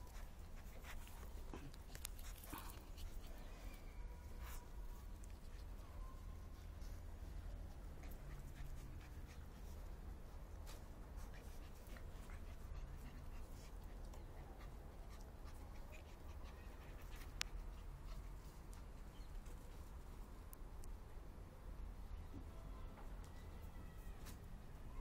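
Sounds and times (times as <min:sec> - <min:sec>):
puppies panting: 0:00.0 - 0:20.0.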